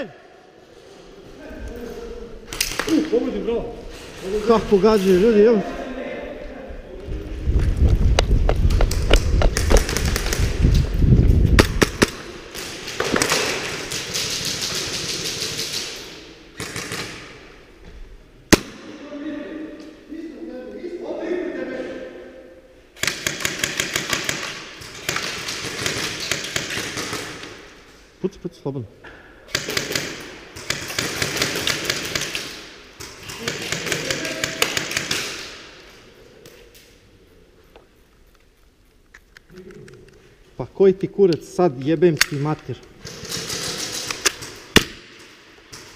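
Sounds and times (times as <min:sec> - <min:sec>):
airsoft gunfire: 0:11.6 - 0:16.0, 0:16.6 - 0:17.4, 0:23.0 - 0:27.5, 0:29.5 - 0:35.6, 0:43.0 - 0:45.2.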